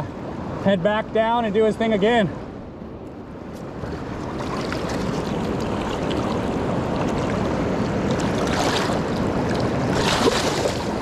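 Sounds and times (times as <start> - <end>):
river water rushing over gravel: 3.8 - 11.0
fish tail splashing: 8.1 - 11.0.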